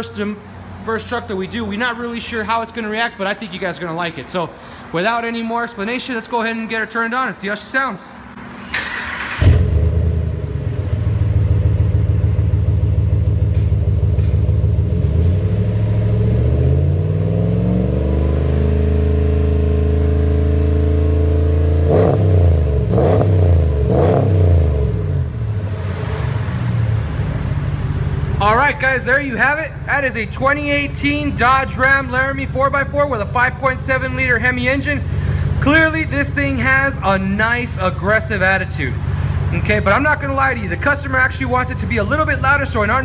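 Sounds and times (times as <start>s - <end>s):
engine starting: 8.6s - 10.0s
engine idling and revving: 8.8s - 43.0s.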